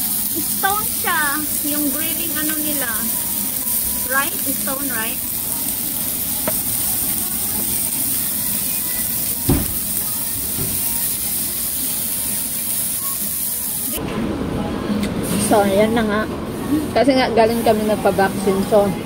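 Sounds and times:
meat sizzling on hot stone: 0.0s - 14.0s.

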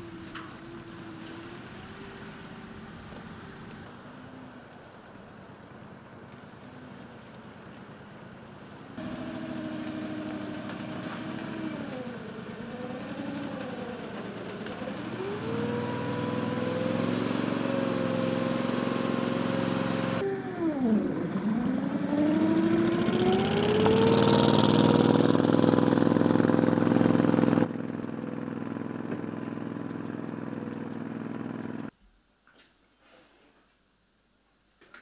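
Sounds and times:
boat engine running: 9.0s - 20.3s, 21.0s - 31.9s.

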